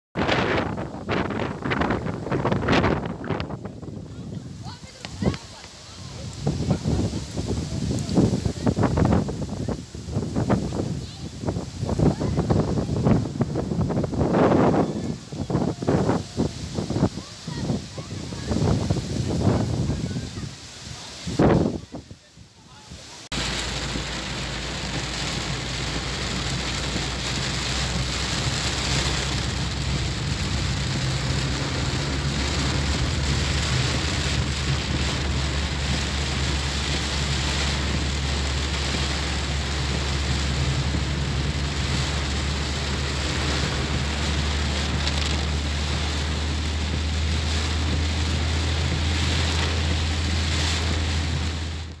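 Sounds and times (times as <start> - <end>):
heavy rain on car roof: 0.2 - 21.8, 22.9 - 52.0
low rumble of moving car: 23.3 - 52.0.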